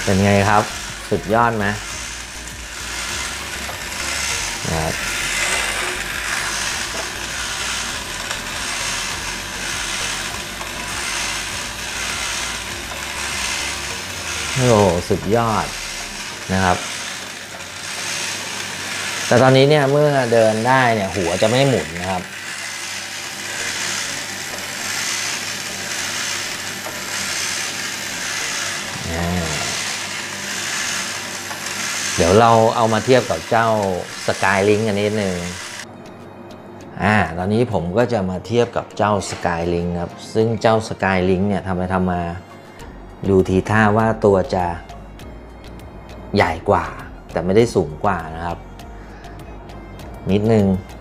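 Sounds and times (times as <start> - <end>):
toy robot motor whirring: 0.0 - 35.9.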